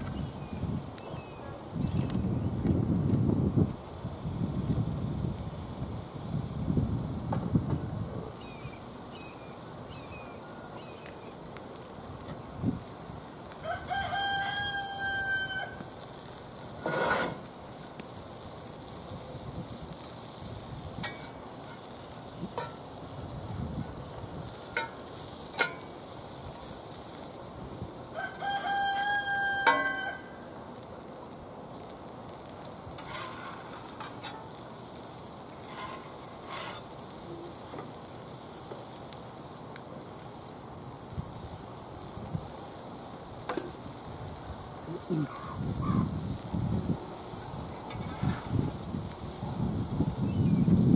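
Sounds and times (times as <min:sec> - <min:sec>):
pancakes sizzling in oil: 0:00.0 - 0:50.9
rooster crowing: 0:13.6 - 0:15.8, 0:28.1 - 0:30.5.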